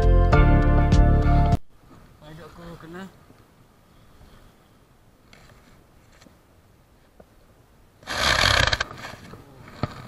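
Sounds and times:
soft rustling: 0:01.8 - 0:07.5
rubbing scrape on camera: 0:08.0 - 0:10.0.

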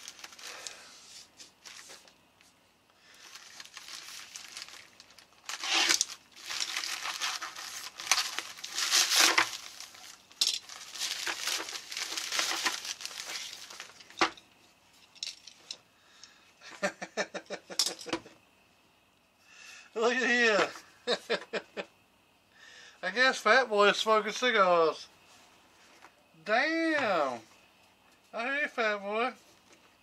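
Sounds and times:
plastic mailer crinkling: 0:00.0 - 0:00.8, 0:01.6 - 0:02.2, 0:03.1 - 0:14.4.

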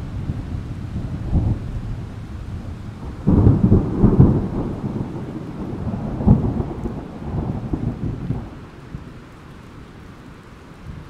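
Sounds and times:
thunder rumbling: 0:00.0 - 0:09.3
rain hissing: 0:00.0 - 0:11.0
thunder crack: 0:02.5 - 0:08.6.

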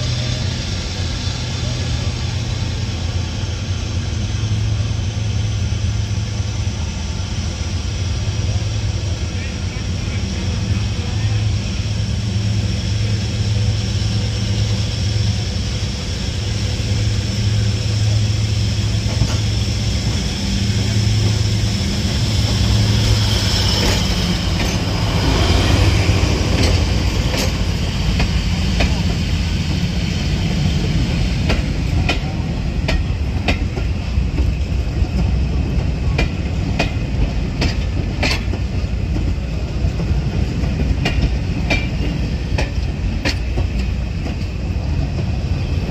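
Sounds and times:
diesel locomotive humming: 0:00.0 - 0:45.9
train wheels clicking over rail joints: 0:14.2 - 0:45.9.

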